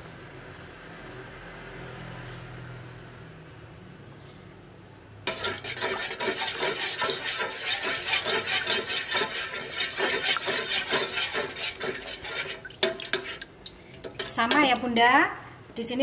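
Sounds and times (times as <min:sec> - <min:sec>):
spatula scraping metal saucepan: 0:05.3 - 0:14.9.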